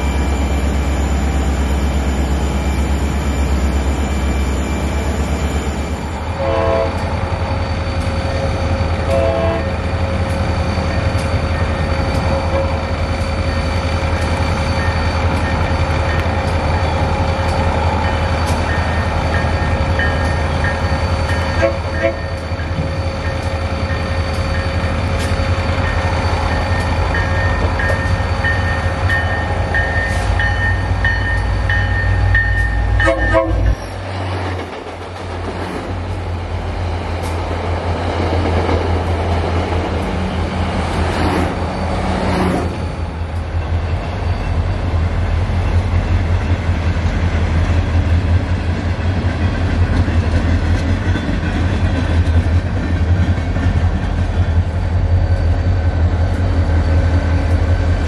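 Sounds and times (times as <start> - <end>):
diesel locomotives rumbling: 0.0 - 58.0
train rolling by: 0.0 - 58.0
train horn blast: 6.4 - 7.1, 9.0 - 9.8, 21.5 - 22.3, 33.0 - 33.8.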